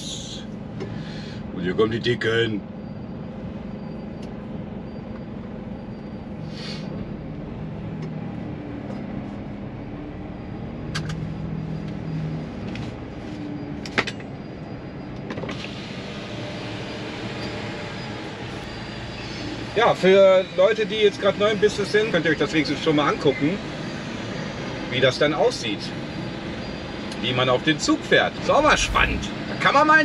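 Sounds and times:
diesel truck engine: 0.0 - 20.8, 28.4 - 29.7
road and tyre noise: 2.6 - 21.2, 28.3 - 29.7.

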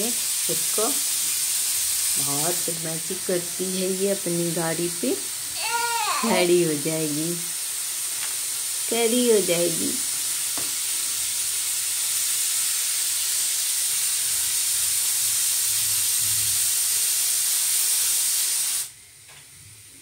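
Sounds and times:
loud steady hiss: 0.0 - 20.0.

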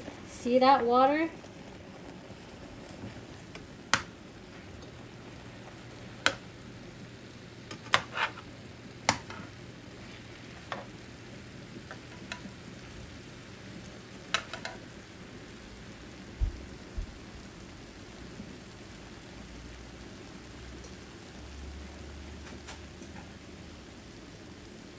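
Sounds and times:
sausages sizzling in a pan: 0.0 - 24.9
spatula scraping a pan: 7.7 - 8.5.

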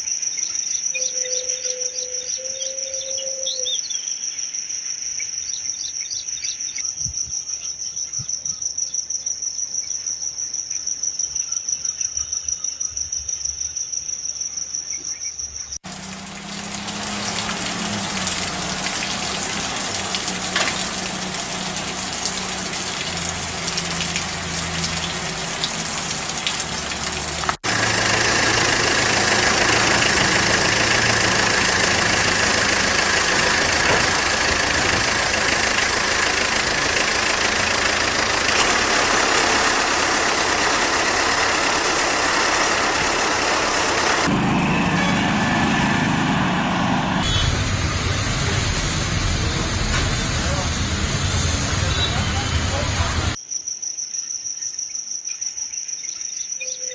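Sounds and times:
insect trill: 0.0 - 15.8, 53.4 - 56.9
vehicle engine running: 15.8 - 53.4.

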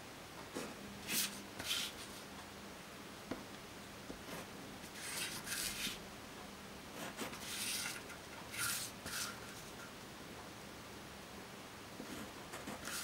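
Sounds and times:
pen scratching on paper: 4.3 - 6.0, 7.0 - 9.4, 12.1 - 13.0.

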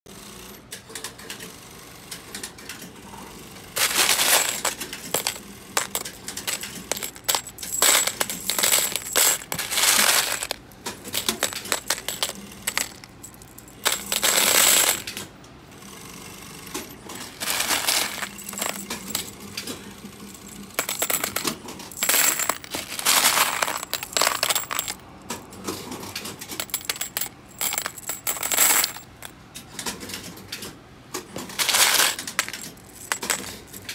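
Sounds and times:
small metal parts jingling in a bin: 3.8 - 15.2, 17.1 - 19.5, 20.5 - 25.1, 26.5 - 29.3, 31.5 - 33.9.

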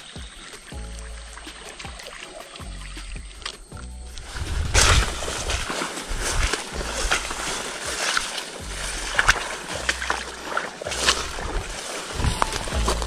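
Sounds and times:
wind rumbling on microphone: 0.0 - 13.0
grass swishing and rustling: 3.4 - 13.0.

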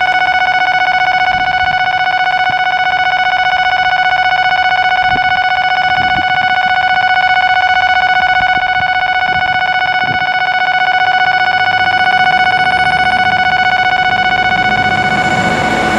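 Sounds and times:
level crossing alarm ringing: 0.0 - 15.9.

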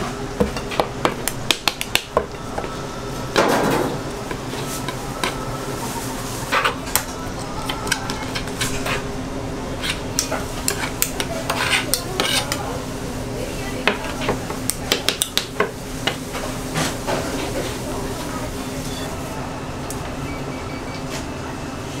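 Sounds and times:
steady low hum: 0.0 - 22.0
metal spatula scraping cutting board: 9.8 - 12.6.

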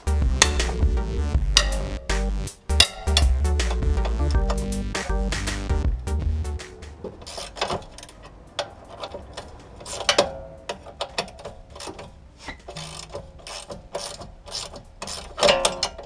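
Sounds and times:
socket ratchet clicking: 2.7 - 4.8, 7.2 - 16.0.

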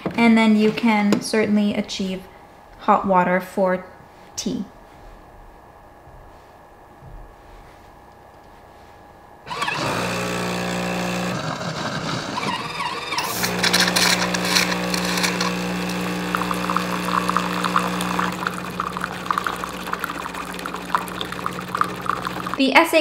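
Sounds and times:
espresso machine pump humming: 9.5 - 22.6.

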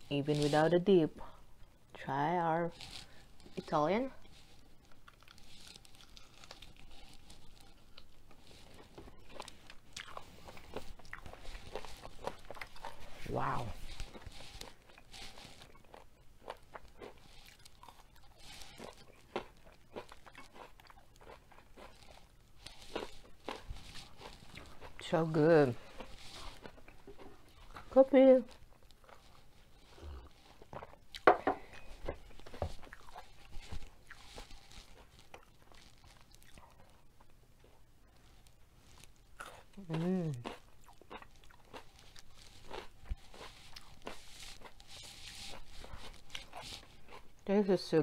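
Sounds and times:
chewing with soft crunches: 2.6 - 47.6.

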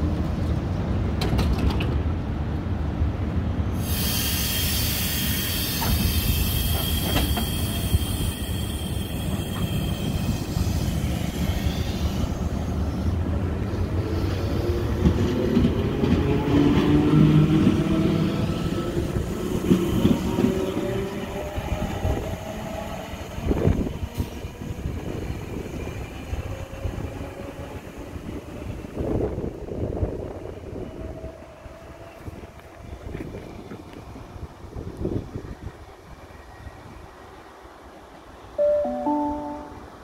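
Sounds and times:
train wheels rumbling on rail: 0.0 - 38.2.

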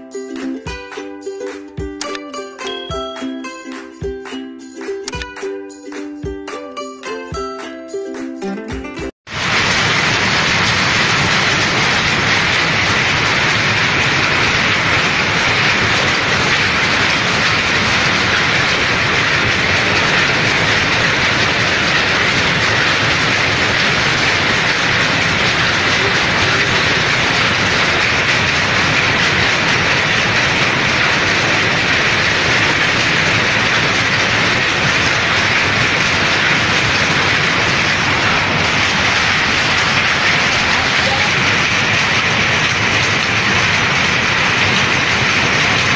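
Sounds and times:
machinery clattering: 9.3 - 45.9.

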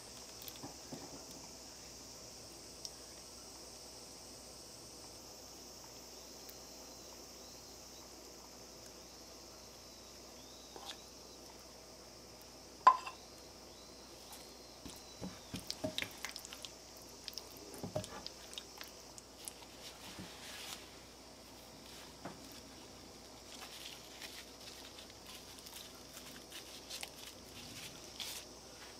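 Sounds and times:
batter squishing and clicking: 14.8 - 20.0.

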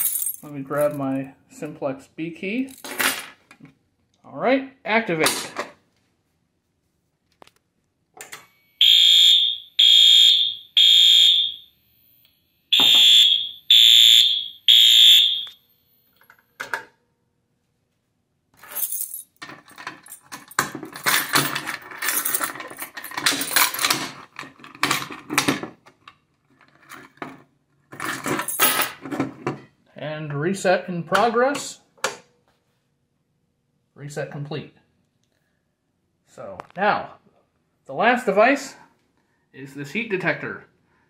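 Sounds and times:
fire alarm horn blasts: 8.8 - 11.8, 12.7 - 15.6
clattering and rattling: 18.6 - 29.8.

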